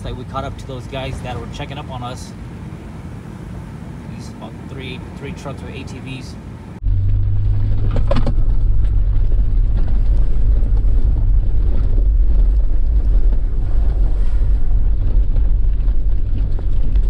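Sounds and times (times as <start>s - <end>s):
vehicle driving on gravel: 6.8s - 17.0s
wind buffeting microphone: 6.8s - 17.0s.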